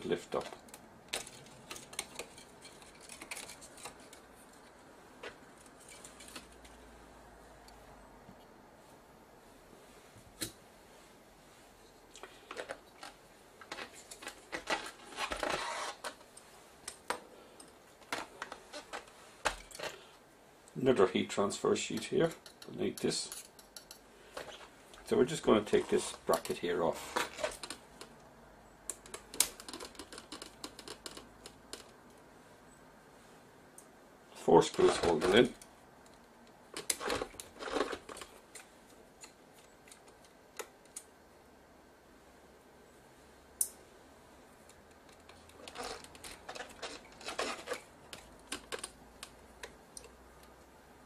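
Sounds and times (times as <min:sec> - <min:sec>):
metal parts clicking and rattling: 0:00.0 - 0:06.8, 0:12.2 - 0:16.2, 0:22.0 - 0:27.8, 0:36.7 - 0:41.1, 0:44.9 - 0:50.1
light scraping: 0:10.9 - 0:20.1, 0:20.9 - 0:27.6
clicks and taps of handling metal: 0:21.9 - 0:25.1.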